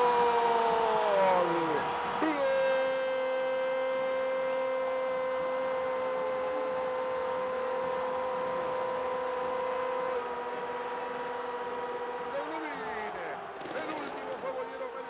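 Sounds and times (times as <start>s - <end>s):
crowd noise: 0.0s - 15.0s.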